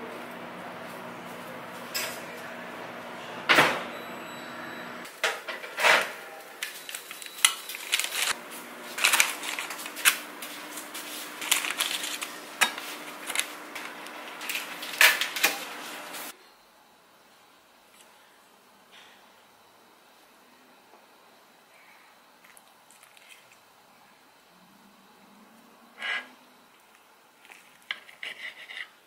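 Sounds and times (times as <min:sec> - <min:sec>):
dishes and utensils clinking: 0:01.9 - 0:02.3, 0:11.4 - 0:13.5.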